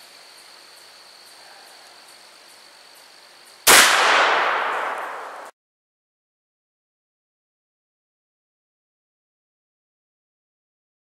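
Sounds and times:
shotgun shot: 3.7s - 5.5s.

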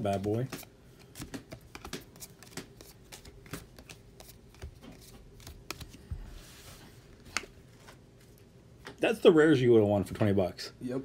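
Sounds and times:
cards clicking and flicking: 0.0s - 6.1s
cards sliding rustle: 0.0s - 8.4s.

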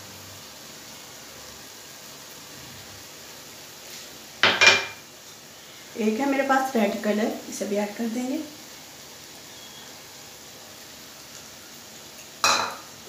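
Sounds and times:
bowl clinking against dish: 4.4s - 5.0s, 12.5s - 12.8s
kitchen dishes clattering: 4.4s - 5.0s, 12.4s - 12.9s.

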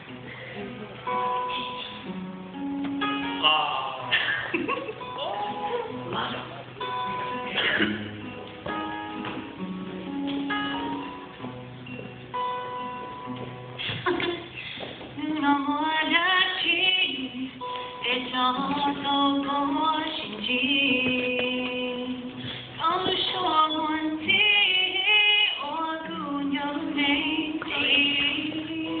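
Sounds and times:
acoustic guitar: 0.0s - 29.0s
woman singing: 13.9s - 29.0s.

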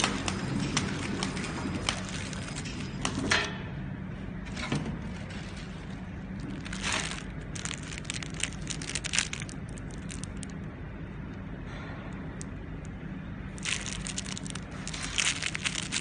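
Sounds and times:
plastic film crinkling: 0.0s - 2.7s, 5.1s - 10.7s, 13.6s - 16.0s
packing machine hum: 0.0s - 16.0s.

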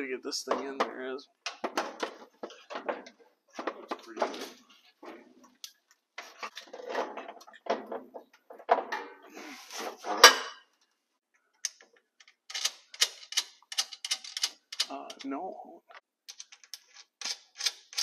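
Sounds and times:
metal scraping and knocking: 6.2s - 10.6s.

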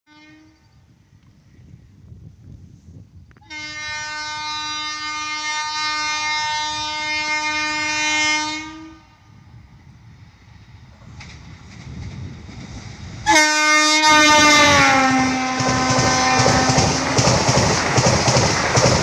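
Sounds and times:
train horn blast: 0.1s - 0.7s, 3.4s - 9.4s, 13.2s - 17.2s
low wind rumble: 0.6s - 5.1s, 8.7s - 19.0s.

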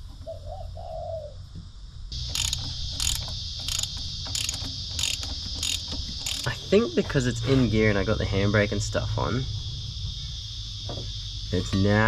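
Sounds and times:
high insect buzz: 2.1s - 12.0s
ratchet wrench clicking: 2.2s - 6.6s.

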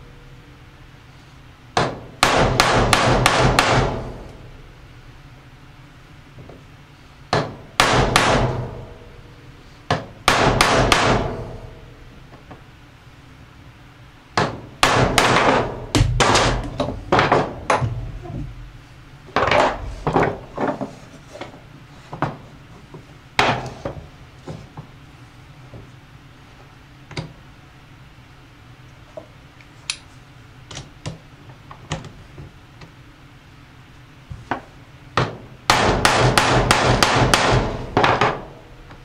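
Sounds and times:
hammer striking steel: 1.8s - 4.3s, 7.3s - 9.1s, 9.9s - 11.7s.

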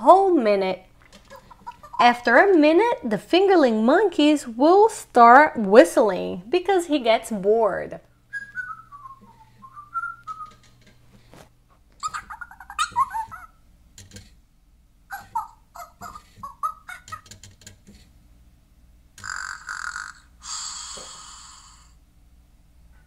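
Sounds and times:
toy whistling a tune: 8.3s - 10.6s.

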